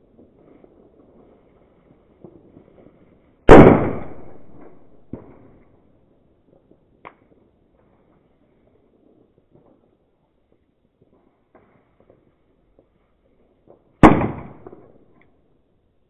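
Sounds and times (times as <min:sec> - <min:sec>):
firecracker bang: 0:02.2 - 0:05.6, 0:13.7 - 0:15.1
small crack and pop: 0:07.0 - 0:07.4.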